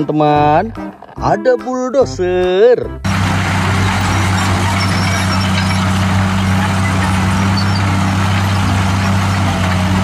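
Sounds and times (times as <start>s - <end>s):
bulldozer diesel engine droning: 3.0s - 10.0s.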